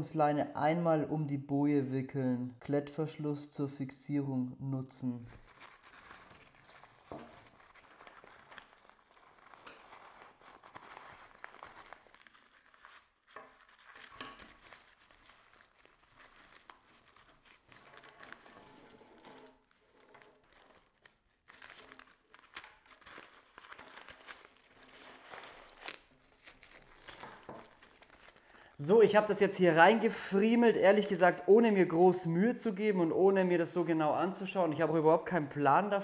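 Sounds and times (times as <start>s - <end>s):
inflatable buoy crinkling and rustling: 5.4s - 28.4s.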